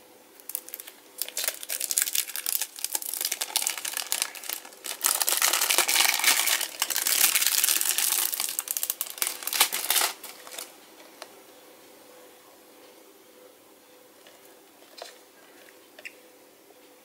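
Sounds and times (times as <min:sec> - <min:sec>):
plastic sleeve crinkling: 0:00.4 - 0:11.3.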